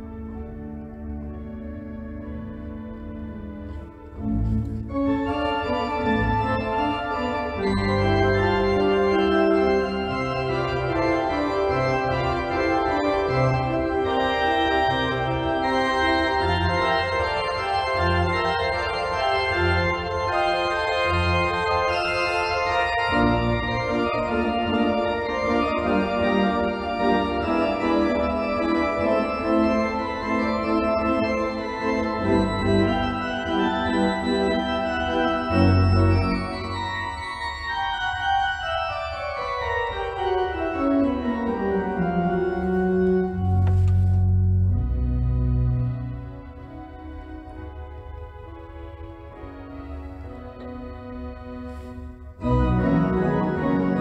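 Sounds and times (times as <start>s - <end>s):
organ music: 0.0s - 54.0s.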